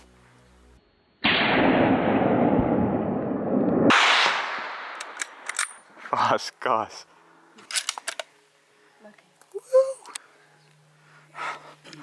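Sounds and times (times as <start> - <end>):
rifle shot echoing: 1.2 - 5.6.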